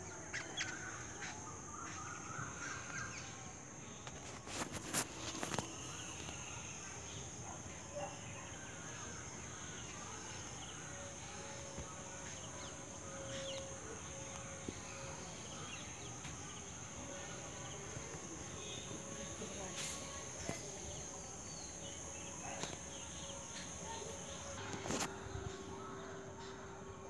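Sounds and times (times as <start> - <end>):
crickets chorus: 0.0 - 27.0
faint chirps: 0.0 - 27.0.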